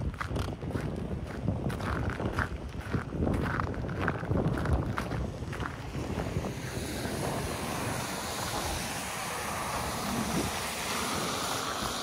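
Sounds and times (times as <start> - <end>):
wind on microphone: 0.0 - 12.0
van driving past: 5.8 - 12.0.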